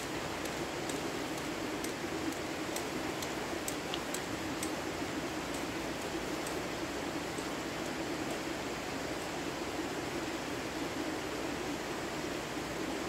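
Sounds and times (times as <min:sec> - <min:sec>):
faint light ticks: 0:00.0 - 0:06.6, 0:07.2 - 0:08.5
river water rushing: 0:00.0 - 0:13.0.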